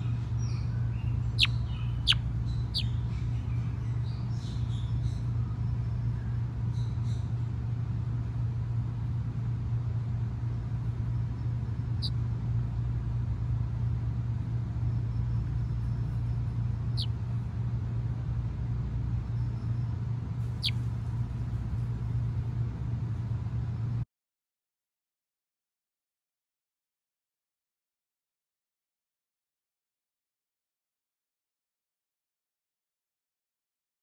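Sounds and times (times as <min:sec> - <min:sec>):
low rumble hum: 0:00.0 - 0:24.1.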